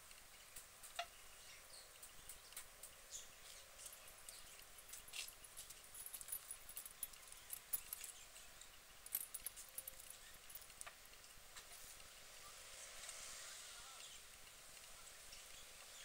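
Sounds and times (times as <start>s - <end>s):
duck preening clicks and rustles: 2.0s - 8.2s.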